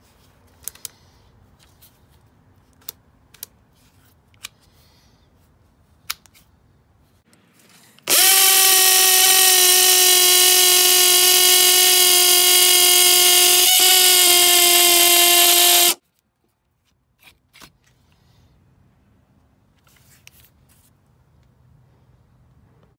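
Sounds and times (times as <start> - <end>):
power drill drilling into brick: 8.1 - 16.0.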